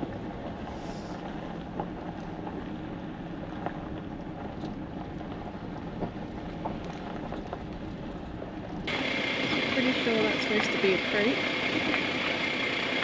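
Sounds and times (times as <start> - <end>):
road and tyre noise: 0.0 - 13.0.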